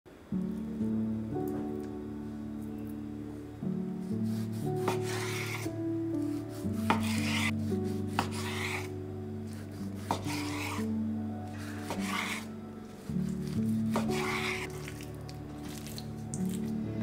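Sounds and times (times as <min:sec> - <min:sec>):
soft background music: 0:00.1 - 0:17.0
knife slicing raw meat: 0:04.3 - 0:08.9, 0:09.5 - 0:10.9, 0:11.6 - 0:12.5, 0:13.2 - 0:15.0.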